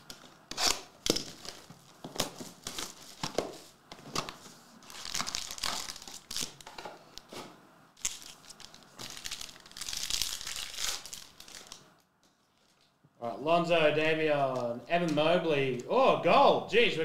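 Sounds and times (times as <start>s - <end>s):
foil wrappers crinkling and tearing: 0.1s - 6.8s, 8.0s - 13.0s.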